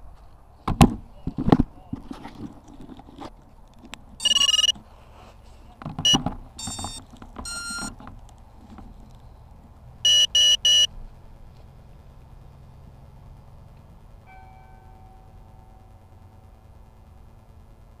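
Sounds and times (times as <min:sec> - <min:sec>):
electronic beeps: 0:04.2 - 0:04.8, 0:06.0 - 0:07.9, 0:10.0 - 0:10.9.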